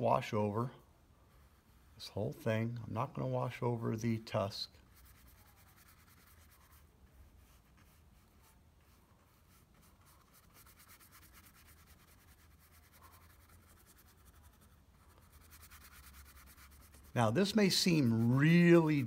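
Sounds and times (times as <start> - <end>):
paintbrush swishing on paper: 4.3 - 19.0.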